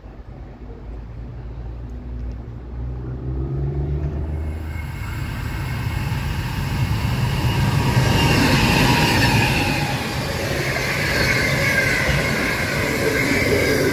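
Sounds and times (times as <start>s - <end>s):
freight train rumbling over rails: 2.6s - 13.9s
wheels squealing: 4.0s - 13.9s.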